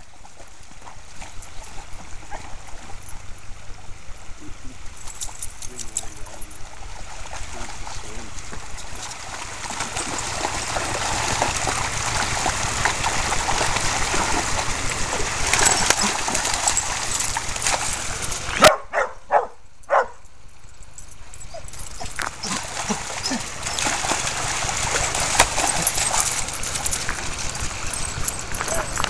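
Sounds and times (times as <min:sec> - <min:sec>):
dogs splashing in water: 0:00.0 - 0:19.1, 0:21.5 - 0:29.0
dog barking: 0:18.6 - 0:20.2.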